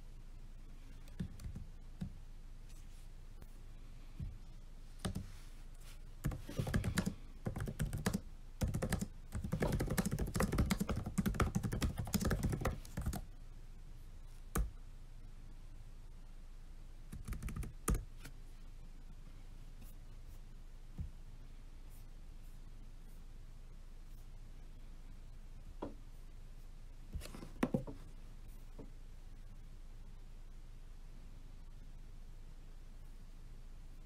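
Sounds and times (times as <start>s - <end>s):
typing on laptop keyboard: 5.0s - 5.3s, 6.2s - 13.3s, 17.1s - 18.1s.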